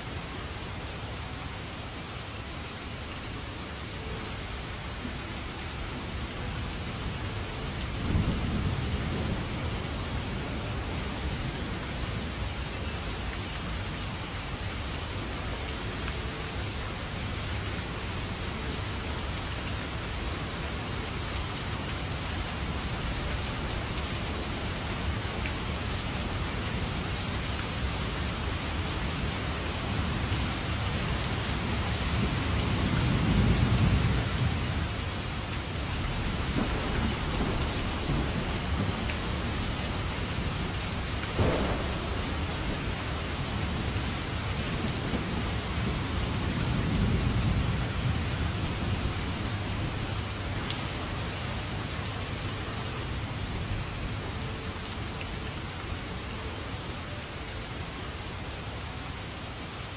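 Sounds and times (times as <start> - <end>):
heavy rain: 0.0 - 59.9
thunder rumble: 36.1 - 50.2.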